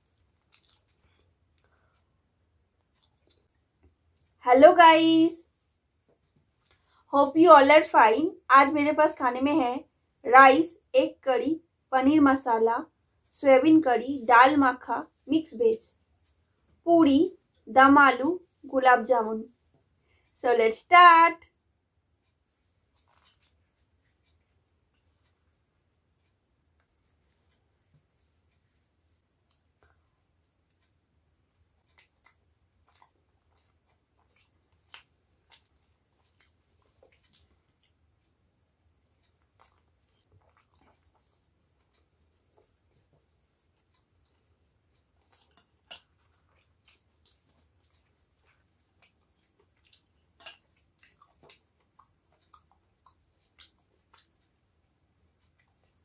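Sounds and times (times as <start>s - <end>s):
chewing crackles and clicks: 0.0s - 2.1s, 2.8s - 4.4s, 31.7s - 38.1s, 38.9s - 42.2s, 44.8s - 54.5s.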